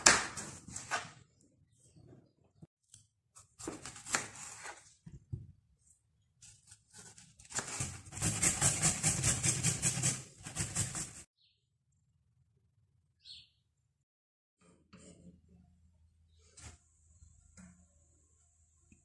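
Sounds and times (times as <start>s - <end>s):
knife scraping plastic board: 6.4s - 11.3s
tomato rasping on metal grater: 6.9s - 11.2s.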